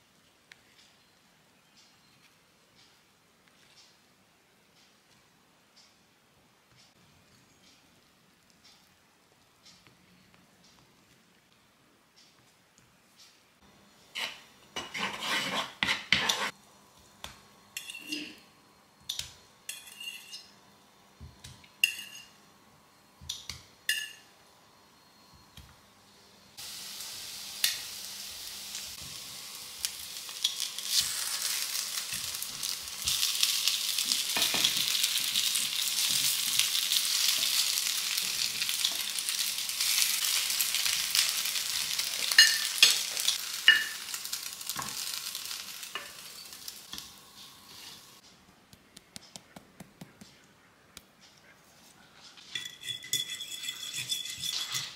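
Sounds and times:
spatula scraping skillet: 14.1s - 16.6s, 30.3s - 44.2s, 44.8s - 48.2s, 52.2s - 54.9s
bread sizzling in butter: 26.6s - 48.2s.

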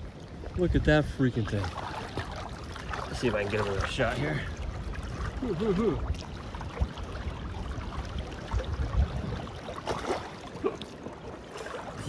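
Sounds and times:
creek water sloshing: 0.0s - 12.0s
fish splashing: 9.6s - 12.0s.

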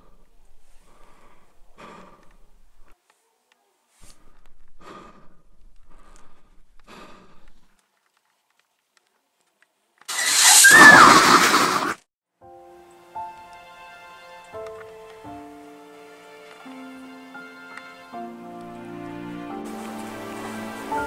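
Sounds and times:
faint breathing: 0.0s - 3.0s, 3.9s - 7.8s
loud harsh shriek: 10.1s - 12.0s.

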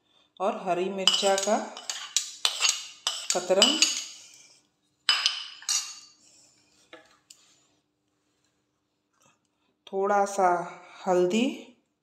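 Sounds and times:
spoon clinking and scraping bowls: 1.0s - 4.4s, 5.1s - 6.2s.

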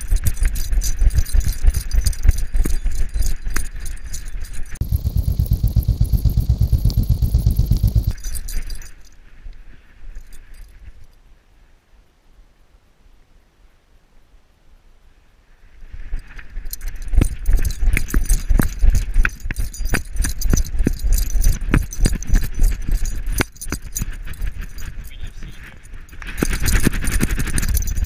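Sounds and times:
low rumble of jolted camera: 0.0s - 9.1s, 16.5s - 28.0s
metal collar tags jangling: 0.0s - 9.2s, 10.1s - 11.2s, 16.2s - 28.0s.

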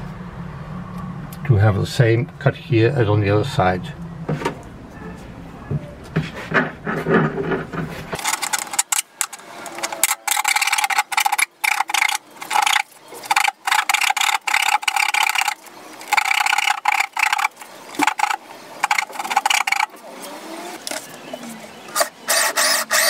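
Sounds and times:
blade scraping plastic: 6.2s - 23.0s.

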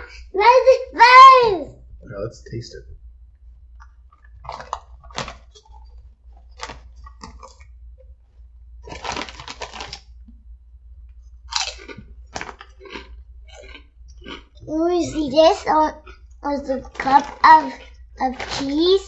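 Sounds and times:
potato chips crunching: 4.2s - 5.9s, 6.5s - 7.7s, 8.9s - 10.1s, 11.5s - 15.2s, 16.8s - 19.0s
foil chip bag crinkling: 4.4s - 7.7s, 8.8s - 10.1s, 11.5s - 14.4s, 16.8s - 19.0s.

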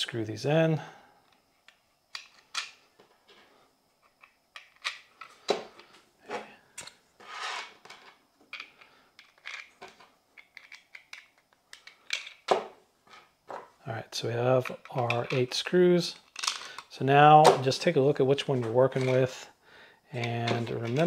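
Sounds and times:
small screws clicking and scraping: 6.8s - 12.5s, 16.1s - 16.9s
plastic parts knocking and rubbing: 20.2s - 21.0s.

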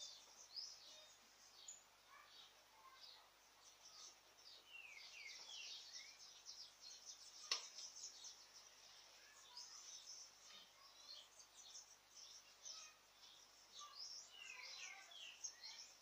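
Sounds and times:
birds chirping: 0.0s - 16.0s
sharp click: 7.5s - 7.8s.

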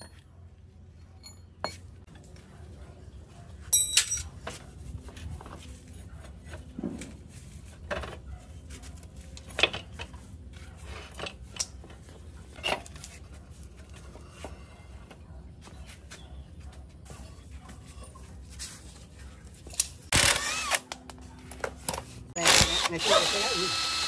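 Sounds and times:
metal parts clinking: 3.7s - 4.4s.

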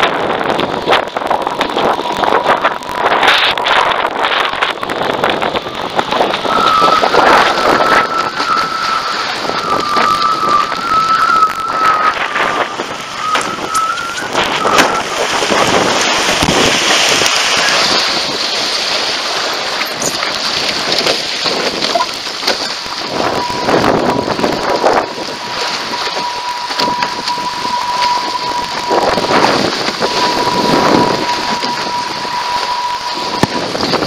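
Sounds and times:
water spraying off boat hull: 0.0s - 34.0s
wind buffeting microphone: 0.0s - 34.0s
thin steady whistle: 6.4s - 15.8s, 23.1s - 34.0s.

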